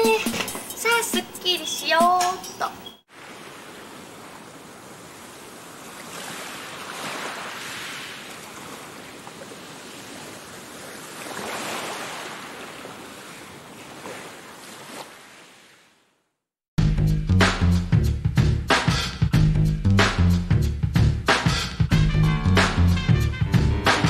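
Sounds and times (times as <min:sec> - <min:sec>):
small waves washing onto beach: 0:03.1 - 0:16.1.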